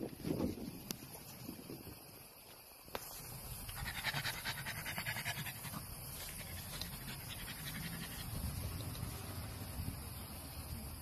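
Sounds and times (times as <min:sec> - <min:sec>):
dog panting: 0:03.7 - 0:08.6.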